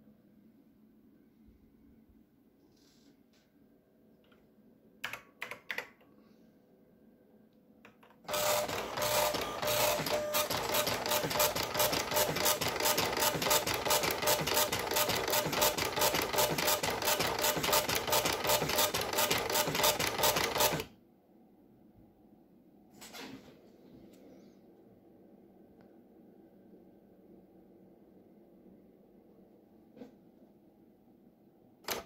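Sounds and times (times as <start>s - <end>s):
dot-matrix printer buzzing: 8.3s - 20.9s.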